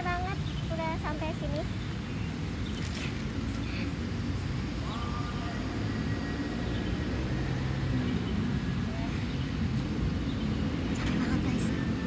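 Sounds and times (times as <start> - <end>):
distant traffic rumble: 0.0 - 12.0
faint voices: 4.7 - 6.6.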